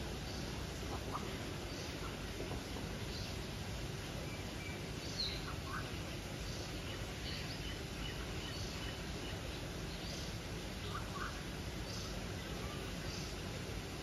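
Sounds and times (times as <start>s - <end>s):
steady background noise: 0.0s - 14.0s.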